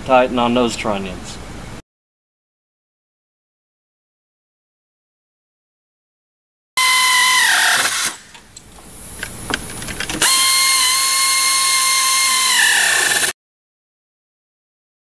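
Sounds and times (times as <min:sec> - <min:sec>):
air ratchet whining: 0:06.8 - 0:08.4, 0:09.5 - 0:13.3.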